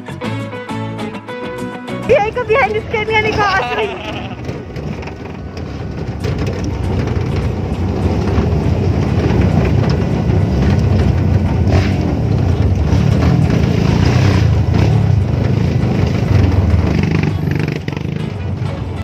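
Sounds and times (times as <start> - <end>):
truck driving on dirt road: 0.0 - 19.0
knocks and rattles from truck bed: 4.4 - 13.7.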